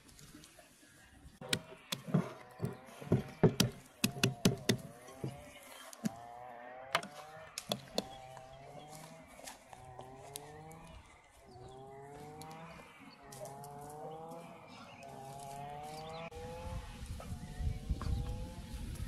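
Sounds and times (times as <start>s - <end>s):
sharp knocks and thumps: 1.4s - 6.2s, 6.9s - 8.2s.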